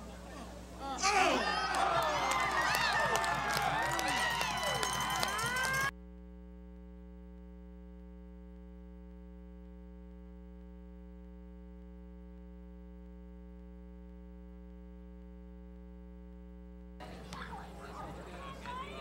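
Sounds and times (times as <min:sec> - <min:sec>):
electrical mains hum: 0:00.0 - 0:05.9.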